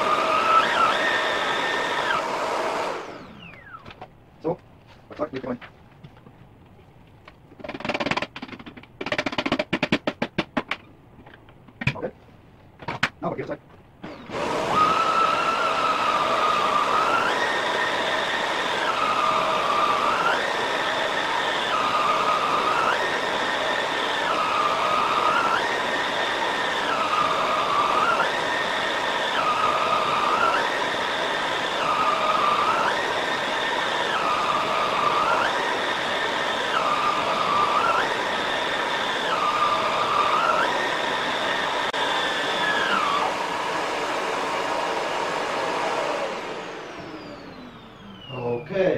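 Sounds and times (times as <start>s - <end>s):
vacuum cleaner motor whine: 0.0s - 4.0s, 14.0s - 48.9s.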